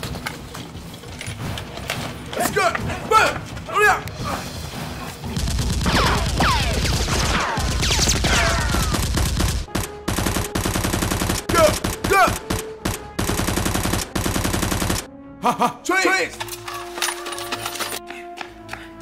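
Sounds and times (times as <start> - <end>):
machine-gun fire: 5.4 - 15.1.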